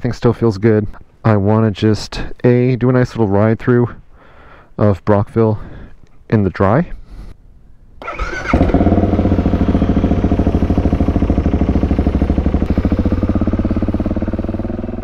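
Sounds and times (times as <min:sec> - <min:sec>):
motorcycle engine idling: 0:08.0 - 0:15.0
starter motor whine: 0:08.0 - 0:15.0.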